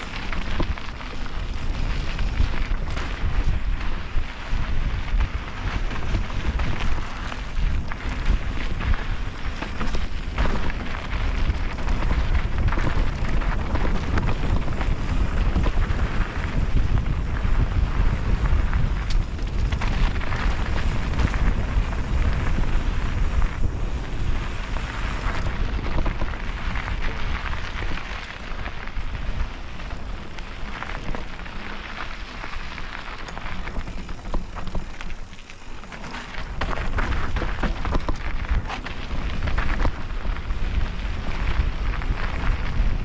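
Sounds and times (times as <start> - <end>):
bike tyres crackling over dirt: 0.0 - 43.0
wind rumble on microphone: 0.0 - 43.0.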